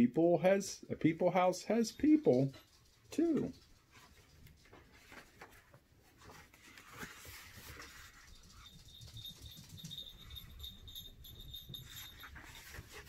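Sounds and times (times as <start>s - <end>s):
soft rustling and handling: 1.7s - 13.0s
small collar bell jingling: 8.1s - 13.0s.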